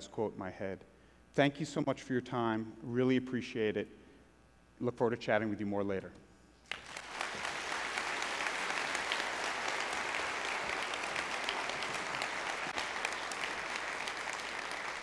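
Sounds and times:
audience applauding: 6.7 - 15.0.

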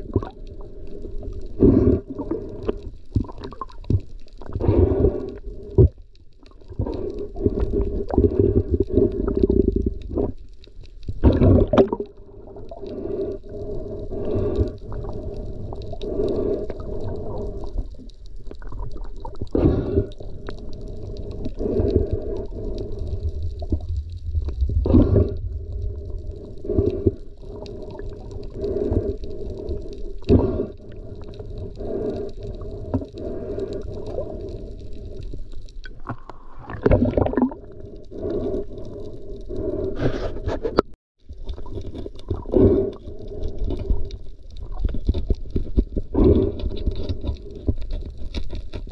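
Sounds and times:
underwater water rushing: 11.2 - 39.8.

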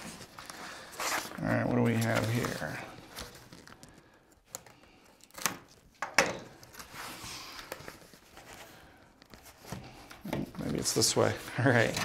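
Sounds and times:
cardboard rustling and scraping: 0.0 - 3.8, 6.7 - 12.0.

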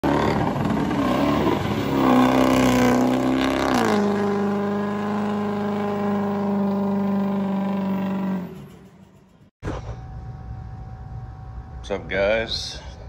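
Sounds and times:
engine revving: 0.0 - 9.9.

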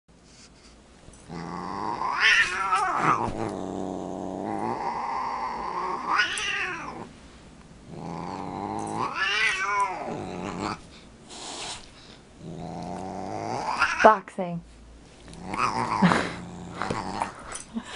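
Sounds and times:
cat growling and yowling: 1.3 - 7.1, 7.9 - 10.8, 12.5 - 14.1, 15.4 - 17.4.

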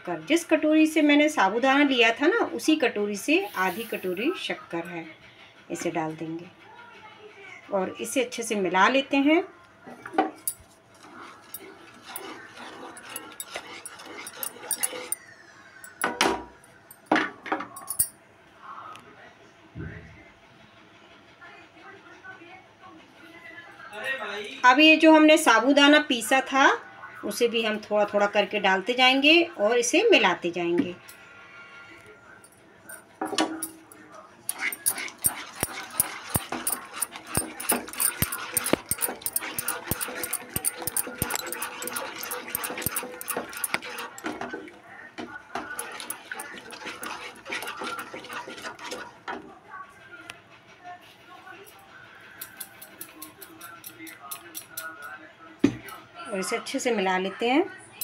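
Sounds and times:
wooden spatula scraping a pan: 11.0 - 15.2, 34.5 - 44.6, 45.5 - 49.4.

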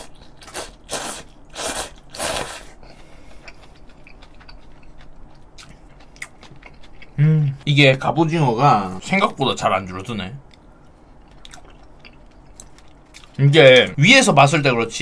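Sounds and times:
person slurping noodles: 0.0 - 2.8
chewing with wet clicks: 2.9 - 7.2, 10.4 - 14.0.

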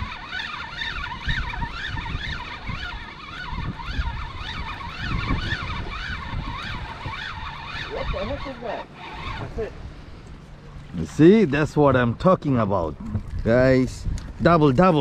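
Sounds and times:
fishing reel gear whine: 0.0 - 11.4
wind rumble on microphone: 0.0 - 15.0.

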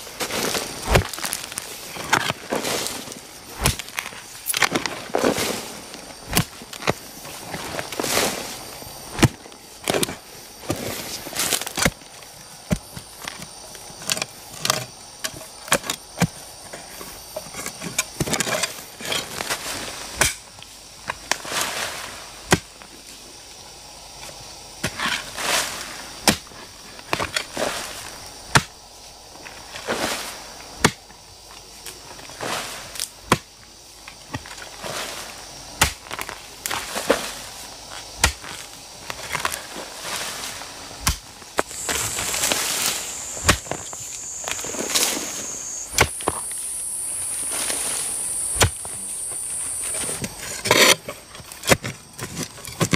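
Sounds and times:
scrape and crumble of earth: 0.0 - 20.3, 24.2 - 28.8, 29.4 - 30.9, 34.2 - 52.9
hoe chopping into soil: 0.4 - 1.3, 3.6 - 5.6, 28.5 - 28.7, 35.8 - 36.2, 38.2 - 38.6, 41.0 - 46.4, 48.5 - 52.9.

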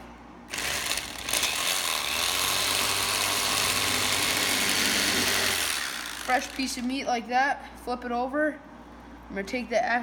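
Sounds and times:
electric knife motor buzzing: 0.5 - 6.9.

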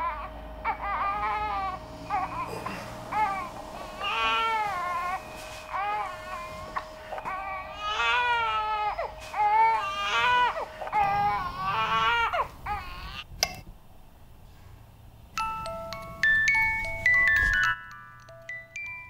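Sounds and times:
baby crying: 0.0 - 13.3
chiming tones: 1.5 - 9.2, 15.4 - 19.0.

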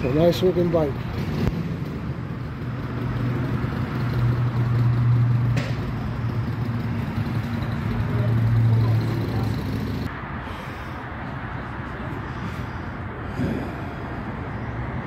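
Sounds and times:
vehicle engine running: 0.5 - 10.1.

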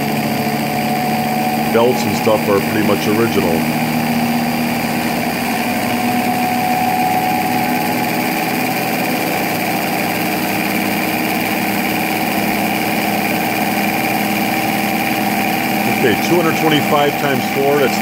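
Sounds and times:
machine motor hum and whine: 0.0 - 18.0.

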